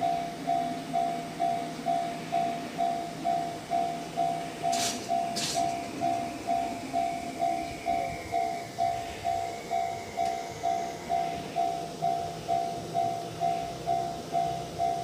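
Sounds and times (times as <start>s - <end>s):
approaching train rumble: 0.0s - 15.0s
level-crossing warning bell: 0.0s - 15.0s.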